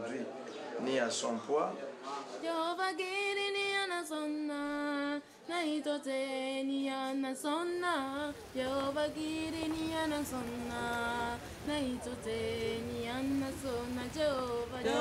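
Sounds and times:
low background noise: 0.0s - 15.0s
person singing long held notes: 8.0s - 15.0s.

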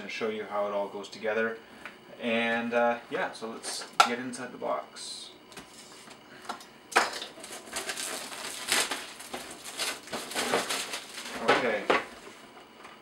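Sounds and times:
paper and plastic crinkling: 7.3s - 12.4s.

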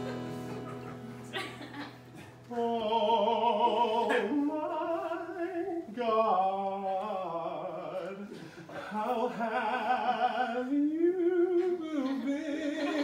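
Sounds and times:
acoustic guitar chord ringing: 0.0s - 3.4s
man singing mock-operatic: 2.5s - 13.0s.

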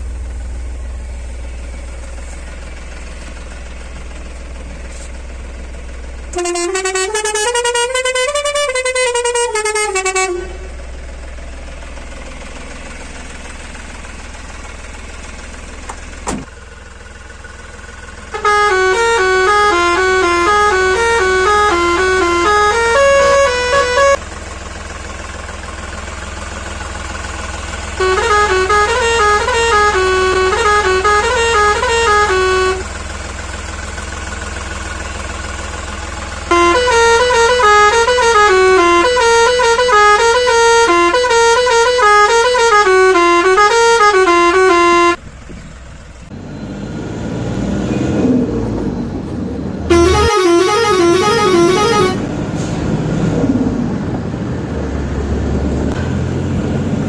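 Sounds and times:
road and traffic rumble: 0.0s - 57.0s
musical air horn tune: 6.3s - 10.7s, 18.3s - 24.2s, 28.0s - 32.9s, 36.5s - 45.2s, 49.9s - 52.8s.

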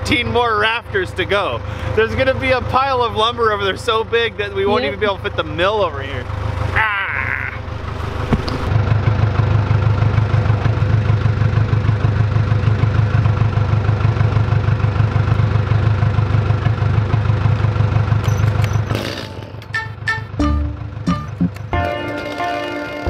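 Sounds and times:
small gasoline engine idling: 0.0s - 23.0s.

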